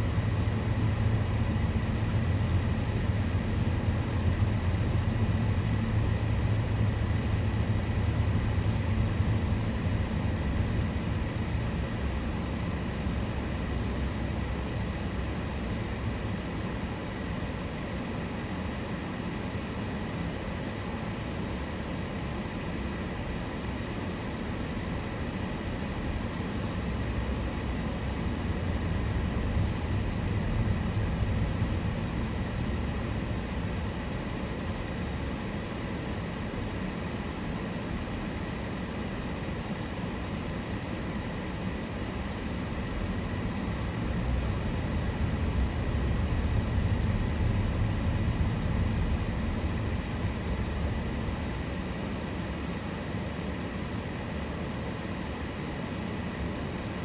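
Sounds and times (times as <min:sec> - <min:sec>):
car road and engine rumble: 0:41.0 - 0:52.6.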